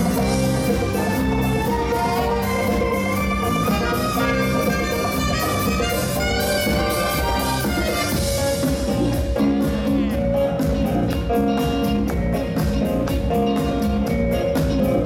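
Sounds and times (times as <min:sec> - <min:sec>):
live disco band: 0:00.0 - 0:15.0
horn section: 0:00.8 - 0:08.6.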